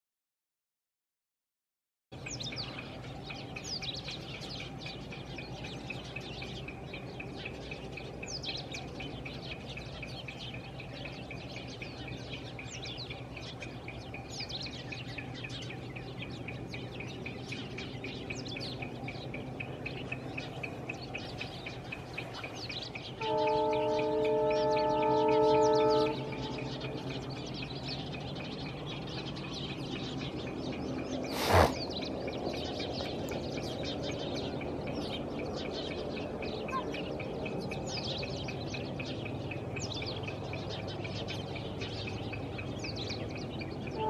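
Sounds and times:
birds whistling: 2.2s - 44.0s
loud horn chord: 23.2s - 26.7s.

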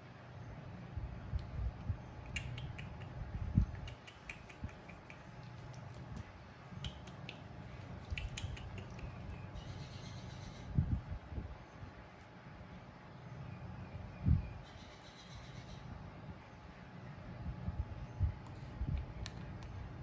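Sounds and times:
low steady hum: 0.0s - 20.0s
monkey sucking fingers: 2.2s - 3.2s, 3.8s - 9.4s.

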